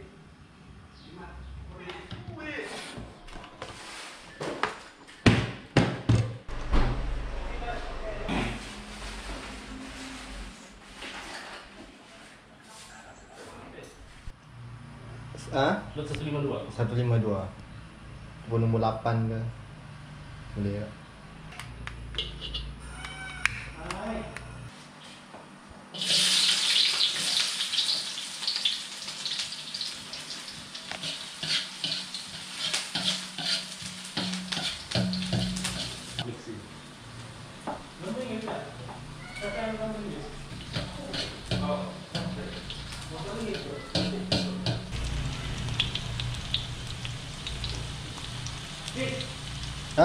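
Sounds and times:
metal spatula scraping a wok: 22.2 - 22.8, 31.0 - 36.2, 40.5 - 44.9
garlic sizzling in hot oil: 26.0 - 36.2, 40.4 - 50.0.

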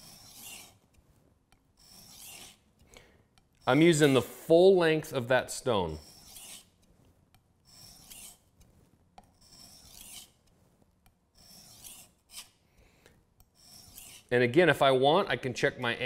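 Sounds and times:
knife rasping on whetstone: 0.0 - 2.9, 3.5 - 4.3, 5.9 - 12.6, 13.4 - 14.3.

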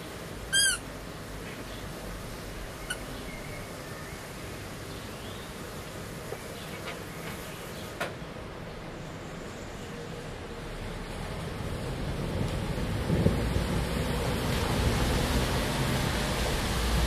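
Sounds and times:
heavy rain hiss: 0.0 - 17.0
dog chewing squeaky toy: 0.5 - 0.8, 2.8 - 3.1.

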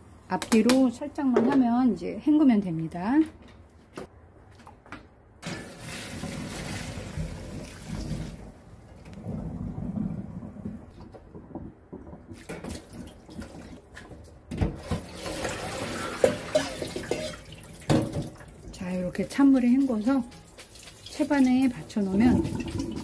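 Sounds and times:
water rushing into sink: 5.4 - 10.4, 14.8 - 23.0
metal bowls clanking: 16.1 - 18.1.

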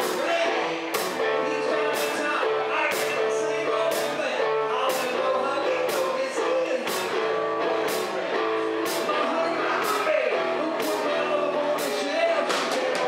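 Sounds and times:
electric bass: 0.0 - 13.0
electric guitar: 0.0 - 13.0
male lead vocal: 0.0 - 13.0
drum beat: 5.8 - 13.0.

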